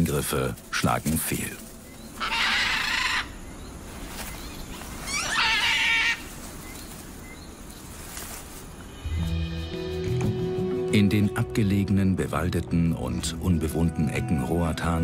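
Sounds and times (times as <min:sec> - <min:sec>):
macaws squawking: 0:01.9 - 0:07.3.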